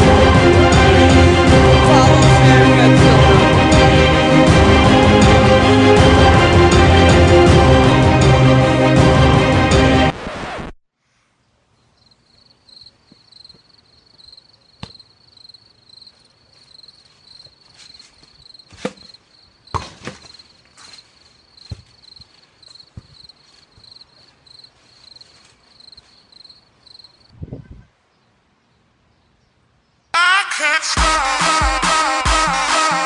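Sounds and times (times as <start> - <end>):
insects chirping: 11.8 - 27.3
trampoline knocks and thumps: 19.7 - 20.4.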